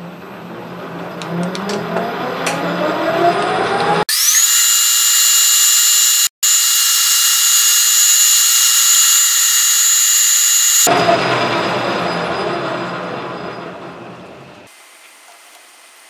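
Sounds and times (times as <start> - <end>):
metal lathe whining: 4.1 - 10.9.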